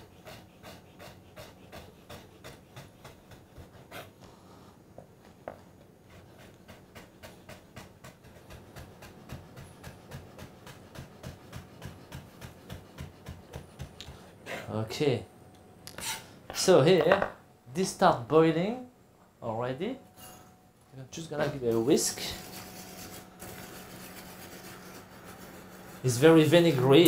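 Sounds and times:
knife chopping on plastic board: 0:06.7 - 0:14.2.

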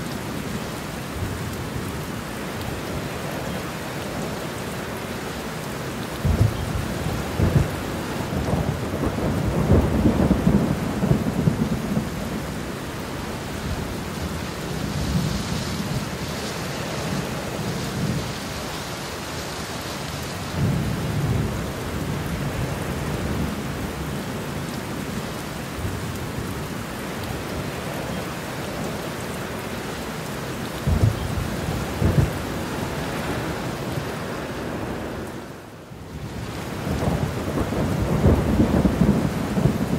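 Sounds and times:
heavy rain falling: 0:00.0 - 0:39.9
thunder rumbling: 0:06.2 - 0:18.4, 0:30.8 - 0:35.2, 0:36.3 - 0:39.9.

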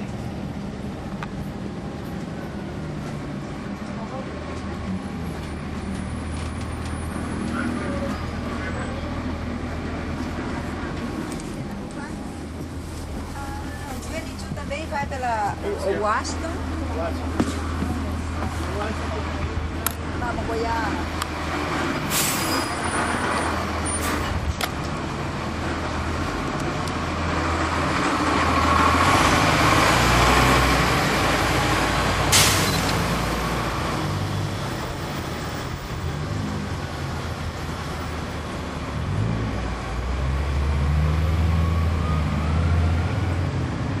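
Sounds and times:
bus diesel engine running: 0:00.0 - 0:44.0.

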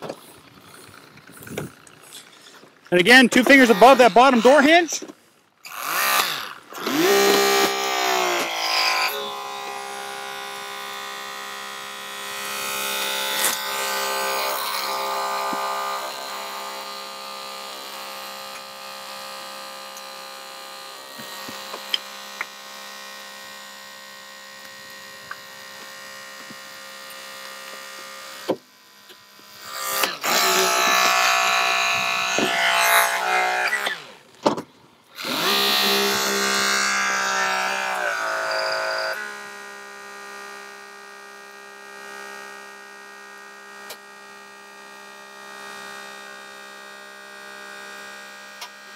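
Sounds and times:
hydraulic cutter motor whining: 0:00.0 - 0:34.3, 0:35.1 - 0:39.5.

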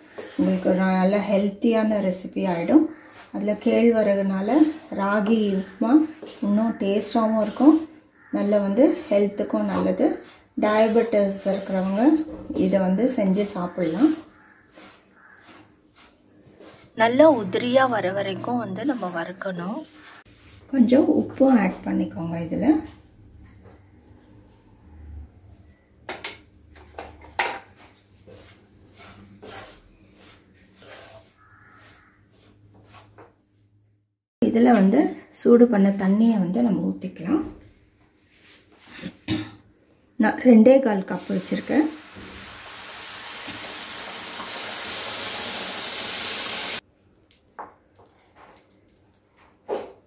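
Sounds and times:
spatula scraping dry mixture in pan: 0:00.0 - 0:20.8, 0:27.8 - 0:33.2
water sizzling in hot pan: 0:41.2 - 0:46.8.

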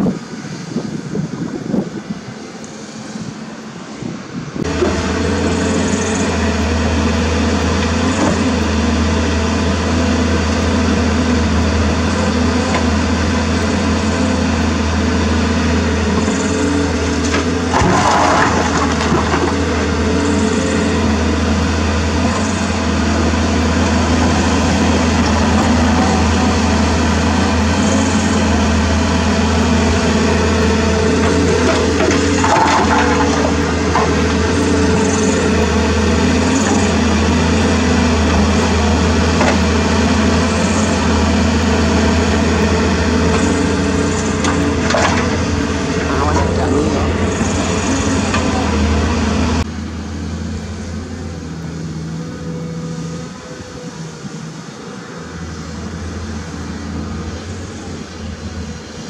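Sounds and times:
excavator diesel engine: 0:00.0 - 0:59.0
dirt and rock clattering: 0:16.2 - 0:21.0, 0:31.2 - 0:37.1, 0:43.4 - 0:49.2.

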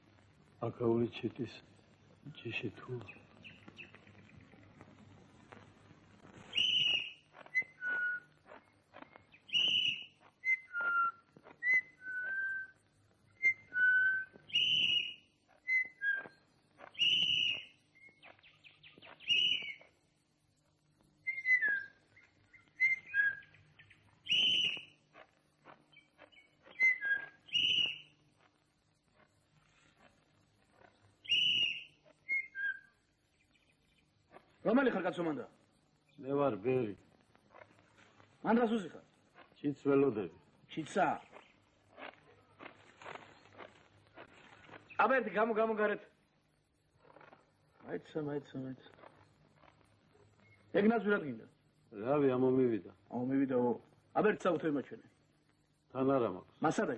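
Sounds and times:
bird-like whistled calls: 0:06.2 - 0:20.0, 0:21.2 - 0:25.0, 0:25.9 - 0:28.1, 0:30.7 - 0:34.0.

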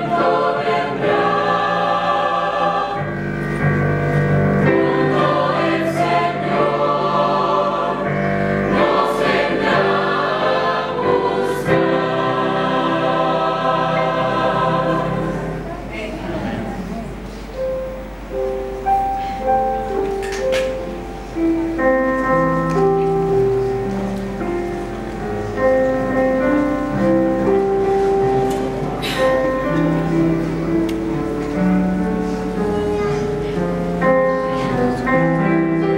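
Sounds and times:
slow piano music: 0:00.0 - 0:35.9.

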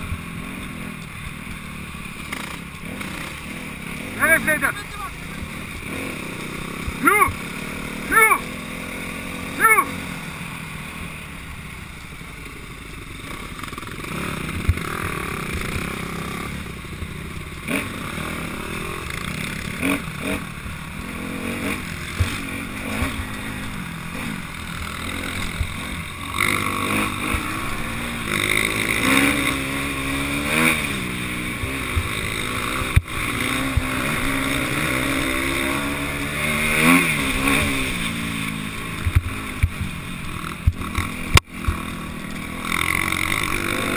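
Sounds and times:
motorcycle engine revving: 0:00.0 - 0:43.9.

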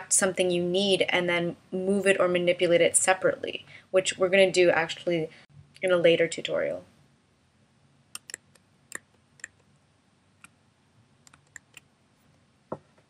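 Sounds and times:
computer mouse clicks: 0:08.2 - 0:09.7, 0:11.2 - 0:11.9.

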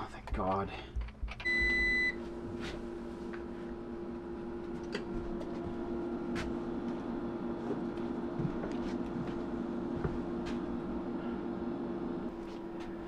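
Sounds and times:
inverter humming: 0:00.0 - 0:13.0.

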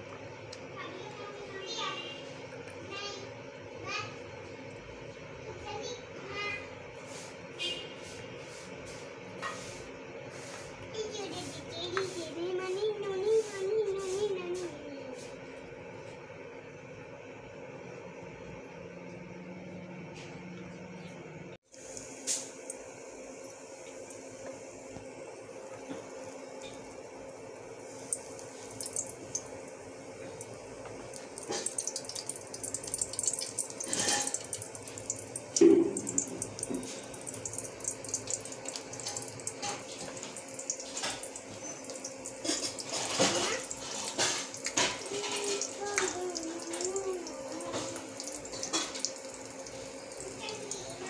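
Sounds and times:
batter sizzling in hot oil: 0:05.7 - 0:15.4, 0:21.6 - 0:51.0.

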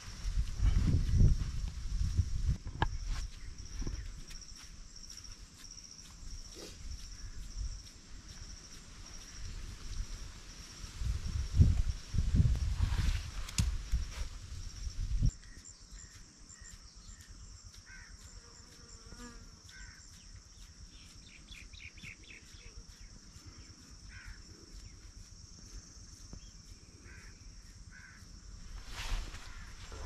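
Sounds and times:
high-pitched insect drone: 0:00.2 - 0:30.0
bird chirps: 0:19.8 - 0:25.0.

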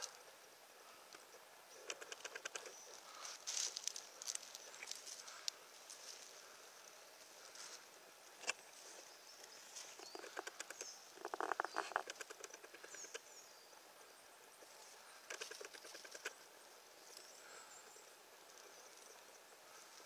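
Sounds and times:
crackling rustle: 0:00.0 - 0:13.3, 0:14.0 - 0:17.8
quiet forest background: 0:00.0 - 0:20.0
faint high bird chirps: 0:08.5 - 0:16.4.

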